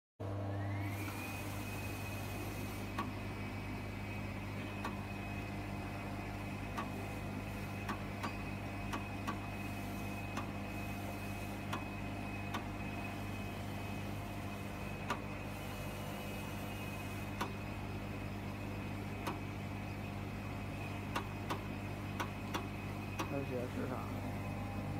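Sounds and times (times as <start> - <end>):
cutting machine hum and whine: 0.2 - 24.9
sharp machine clicks: 21.1 - 23.6.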